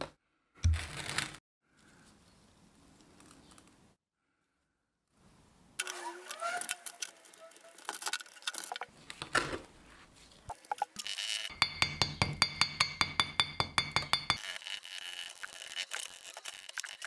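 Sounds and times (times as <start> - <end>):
metal squeaking on metal: 5.9 - 7.9.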